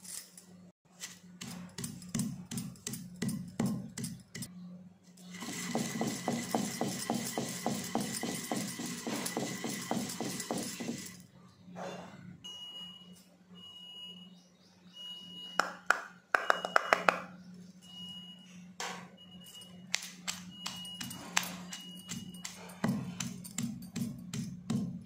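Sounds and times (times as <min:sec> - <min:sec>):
pestle pounding in stone mortar: 0:05.4 - 0:11.2, 0:22.1 - 0:25.0
high electronic beep: 0:16.4 - 0:17.1, 0:17.8 - 0:18.6.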